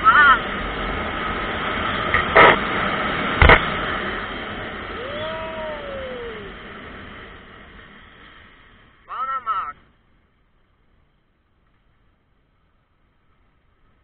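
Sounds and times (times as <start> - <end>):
motorcycle engine: 0.0 - 8.5
wind rush: 0.0 - 9.0
rising and falling tone: 4.8 - 7.0.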